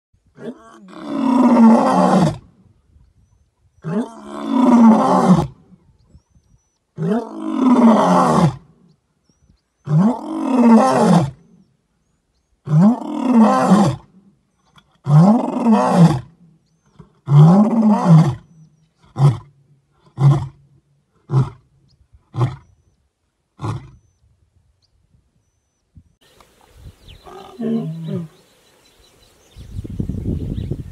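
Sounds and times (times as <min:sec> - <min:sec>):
lion grunting: 0:27.2 - 0:28.4
lion roaring: 0:27.2 - 0:28.4.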